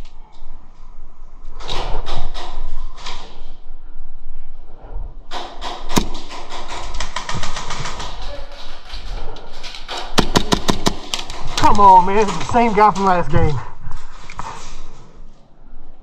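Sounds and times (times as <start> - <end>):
airsoft guns firing: 5.9 - 8.4, 10.0 - 13.3.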